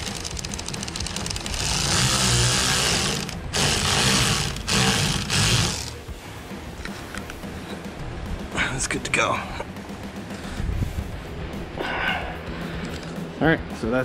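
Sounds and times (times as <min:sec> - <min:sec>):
power tool driving a screw: 0:00.0 - 0:06.0.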